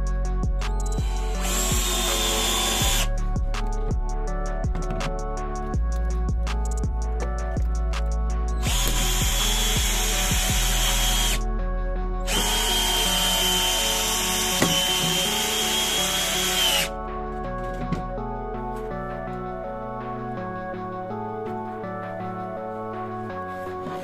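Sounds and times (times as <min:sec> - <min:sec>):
cordless drill motor whining: 0:01.0 - 0:03.1, 0:08.6 - 0:11.4, 0:12.3 - 0:16.9.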